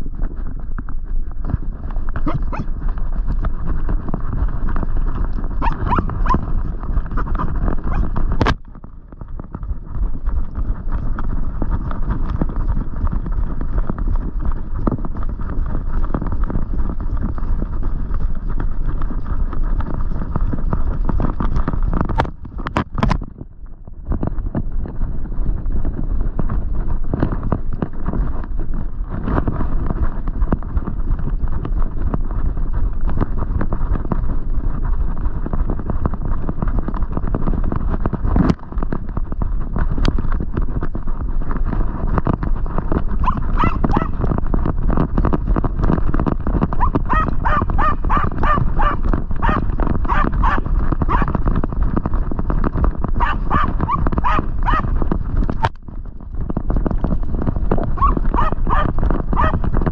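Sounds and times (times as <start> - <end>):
dog barking high and fast: 2.2 - 2.7, 5.6 - 6.5, 7.2 - 8.1, 43.2 - 44.2, 46.8 - 51.3, 53.2 - 54.9, 58.0 - 59.6
dog running through dry leaves: 2.2 - 8.4, 42.0 - 44.9, 46.0 - 55.6.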